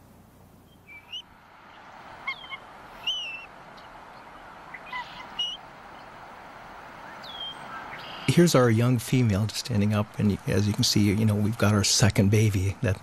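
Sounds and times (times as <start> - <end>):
steady hiss: 0.0 - 13.0
eagle chirping calls: 0.7 - 6.2, 7.0 - 8.4.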